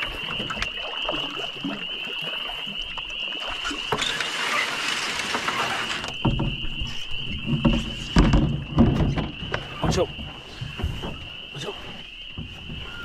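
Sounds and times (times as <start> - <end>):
canoe hull scraping on rocks: 3.8 - 13.0.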